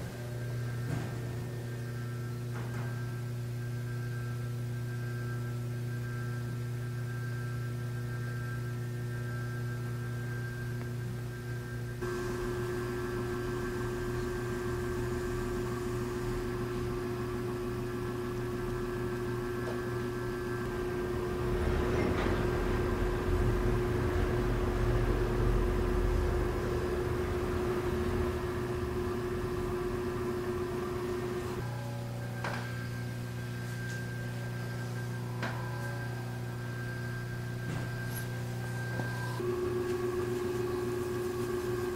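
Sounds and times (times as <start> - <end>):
electrical hum with fixed tones: 0.0 - 41.9
rough low rumbling: 13.7 - 30.2.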